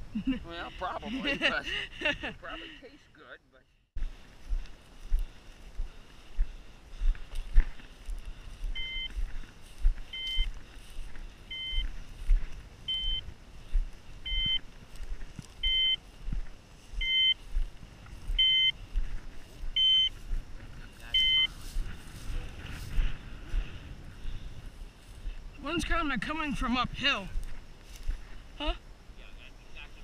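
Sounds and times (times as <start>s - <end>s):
footsteps through dry grass: 3.9s - 28.7s
two-tone collar beeps: 8.7s - 9.2s, 10.1s - 10.5s, 11.5s - 11.9s, 12.9s - 13.2s, 14.3s - 14.6s, 15.6s - 16.0s, 17.0s - 17.4s, 18.4s - 18.8s, 19.8s - 20.2s, 21.1s - 21.6s.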